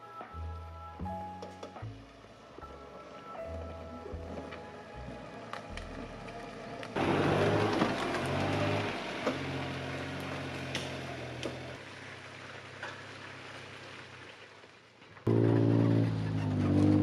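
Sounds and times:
small truck engine running: 0:04.2 - 0:13.6, 0:15.3 - 0:17.0.

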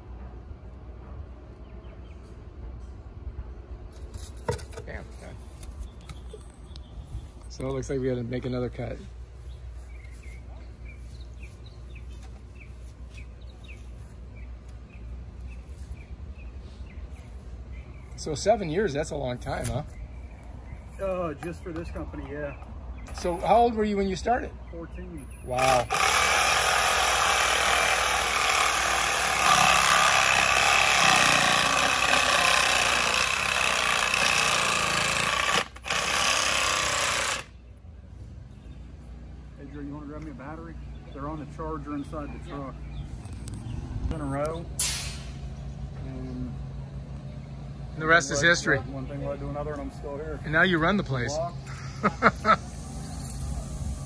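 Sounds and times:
power saw cutting plastic pipe: 0:25.6 - 0:37.5
steady low rumble: 0:42.8 - 0:47.0.

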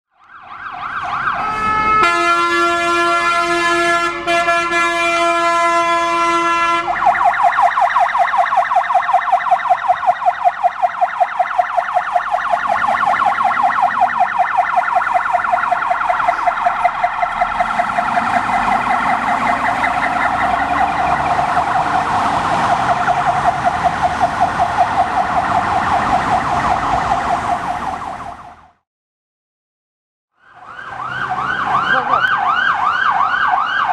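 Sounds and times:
warbling siren: 0:00.1 - 0:28.8, 0:30.3 - 0:33.9
multi-tone horn: 0:01.4 - 0:07.0.

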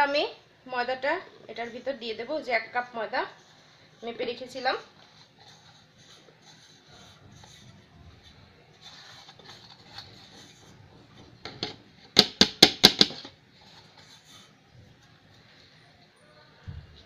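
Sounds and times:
faint rustling handling noise: 0:01.6 - 0:11.4, 0:13.4 - 0:17.0.

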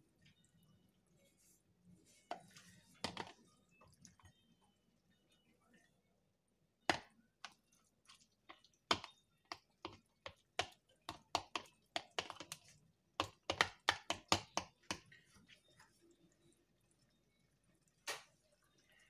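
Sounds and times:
metal spoon tapping and scraping: 0:02.3 - 0:03.4, 0:08.4 - 0:15.2.

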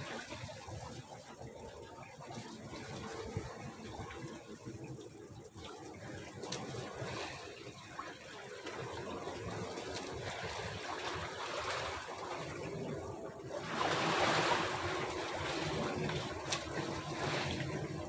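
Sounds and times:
wash of water: 0:00.0 - 0:01.4, 0:05.7 - 0:18.0
seawater lapping: 0:00.0 - 0:18.0.

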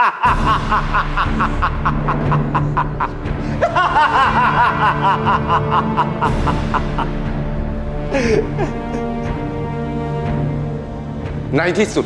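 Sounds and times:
man laughing loudly: 0:00.0 - 0:09.2
low music drone: 0:00.3 - 0:12.0.

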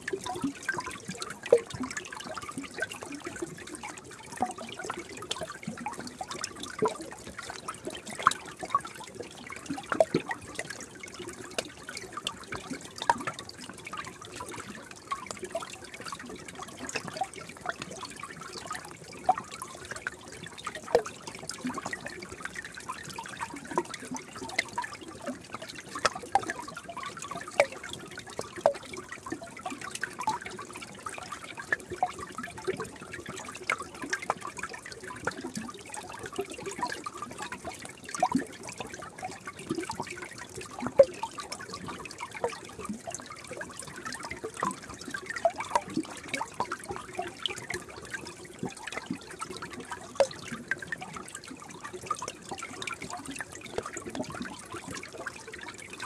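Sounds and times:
stream trickling and gurgling: 0:00.0 - 0:56.0
water plops and bubbles: 0:00.0 - 0:56.0.

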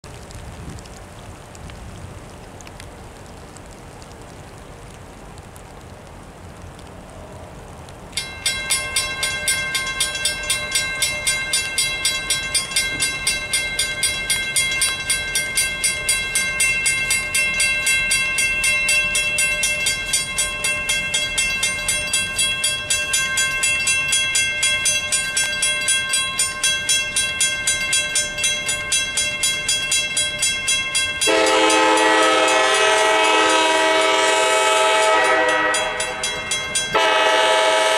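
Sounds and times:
rain falling: 0:00.0 - 0:37.9
crossing warning bell ringing: 0:08.1 - 0:37.9
locomotive horn blowing: 0:31.2 - 0:36.3, 0:36.9 - 0:37.9.

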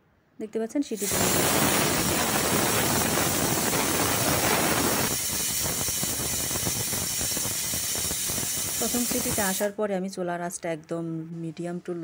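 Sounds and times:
pressure cooker whistle hissing: 0:01.0 - 0:09.7.

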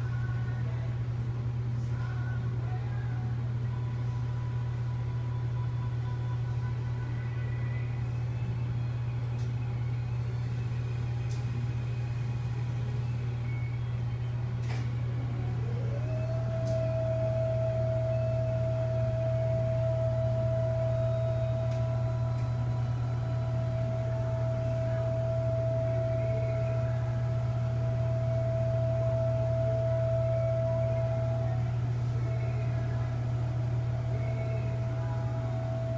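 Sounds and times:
machine low hum: 0:00.0 - 0:35.9
high whine rising in pitch: 0:15.2 - 0:35.9.

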